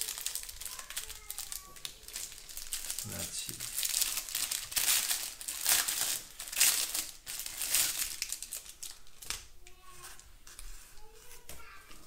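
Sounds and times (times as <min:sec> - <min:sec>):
plastic bag crinkling: 0:00.0 - 0:09.5.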